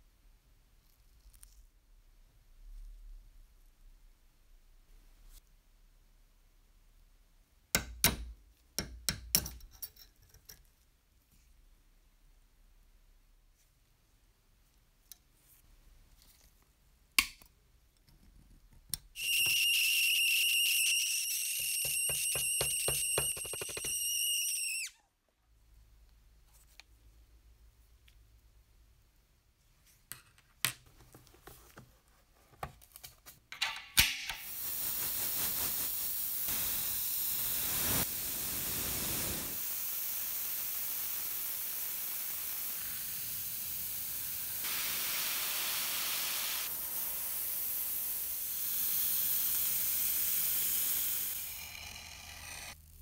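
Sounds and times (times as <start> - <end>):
spray paint hissing: 19.2 - 24.9, 34.4 - 51.6.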